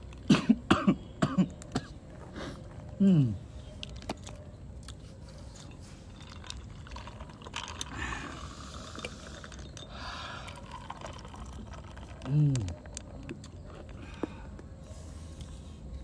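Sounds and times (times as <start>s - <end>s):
clam shells clicking and crackling: 5.6s - 8.0s, 8.9s - 14.1s.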